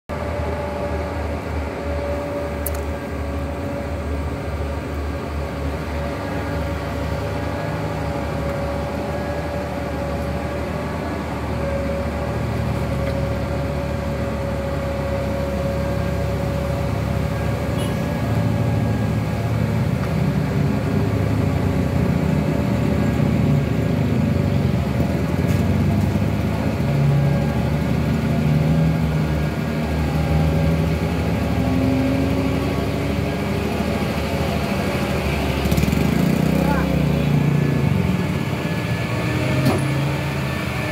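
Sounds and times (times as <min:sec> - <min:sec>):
passing cars: 0:00.1 - 0:40.9
truck diesel engine labouring: 0:00.1 - 0:40.9.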